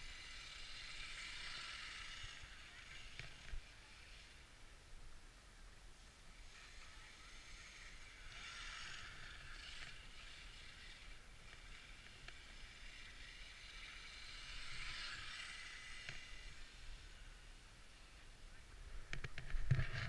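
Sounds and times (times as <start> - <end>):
toy truck motor whining: 0.0 - 4.6, 6.3 - 17.5.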